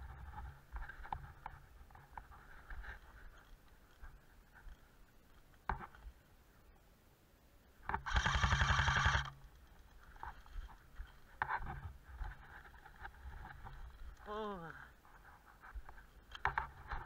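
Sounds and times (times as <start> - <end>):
gun motor hum: 7.9 - 9.4
airsoft gun automatic burst: 8.0 - 9.4.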